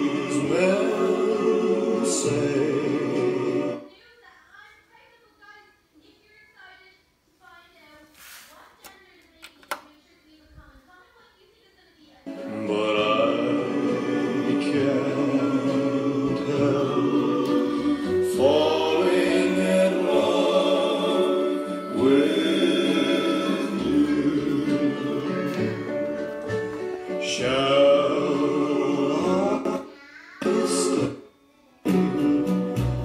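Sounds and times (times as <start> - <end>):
choir singing over speakers: 0.0 - 3.9, 12.3 - 31.3.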